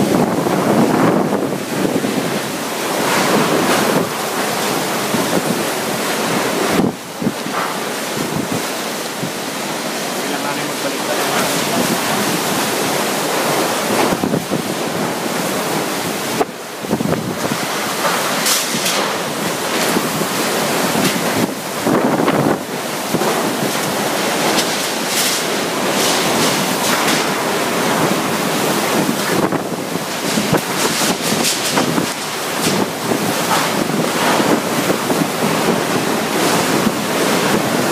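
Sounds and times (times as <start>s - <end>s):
heavy rain: 0.0s - 37.9s
strong gusting wind: 0.0s - 37.9s
wind buffeting microphone: 0.0s - 37.9s.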